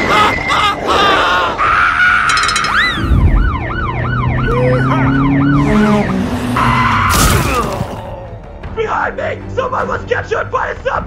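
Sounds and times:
siren sweeping up and down: 1.8s - 7.1s.

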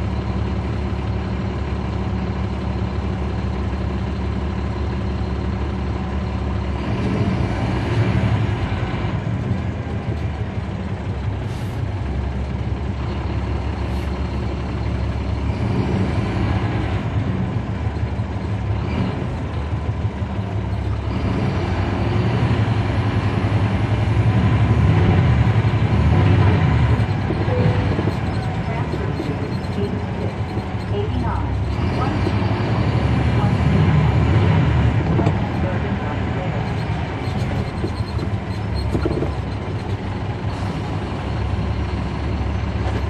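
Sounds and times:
bus diesel engine running: 0.0s - 43.0s.

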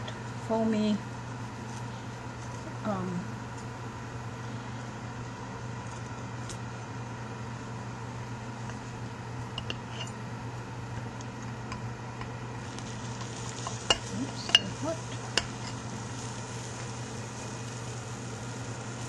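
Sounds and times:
steady low hum: 0.0s - 19.0s
quiche sizzling faintly: 1.1s - 19.0s.

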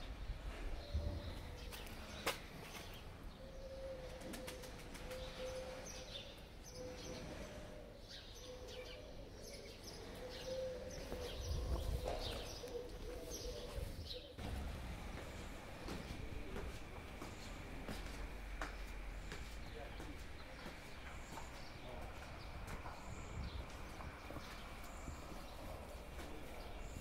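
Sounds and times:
small birds chirping: 0.7s - 14.4s, 15.1s - 27.0s
steady low hum: 12.8s - 27.0s.

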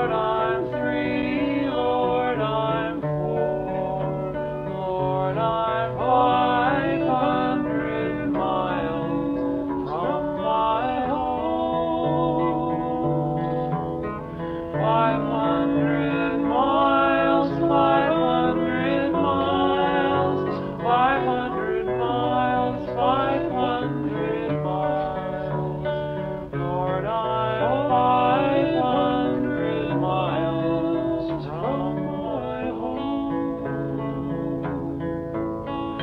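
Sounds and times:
song with plucked guitar: 0.0s - 36.0s.

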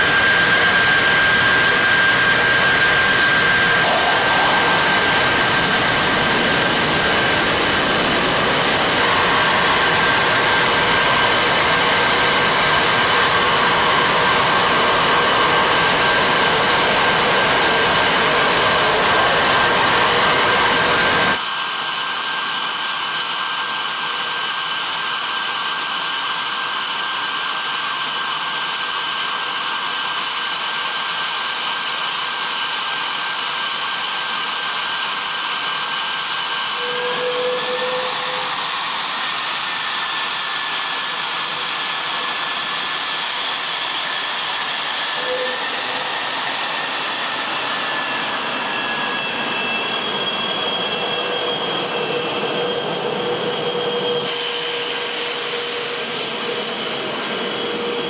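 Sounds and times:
jet engines whining: 0.0s - 58.0s
rushing noise: 1.4s - 12.3s.

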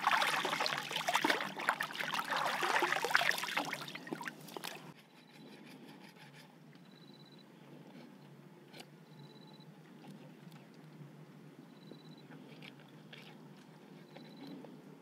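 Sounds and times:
water splashing and dripping: 0.0s - 4.9s.

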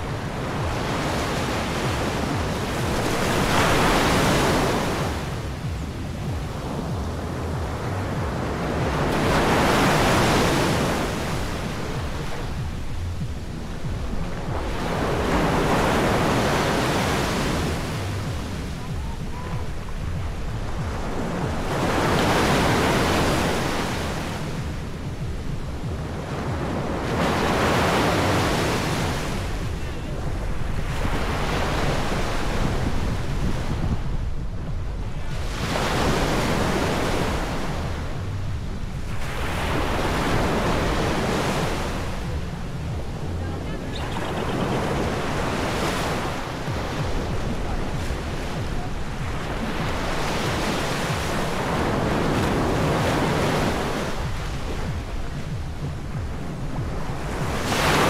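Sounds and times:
sea waves breaking on a beach: 0.0s - 58.0s
wind rumble on microphone: 0.0s - 58.0s.

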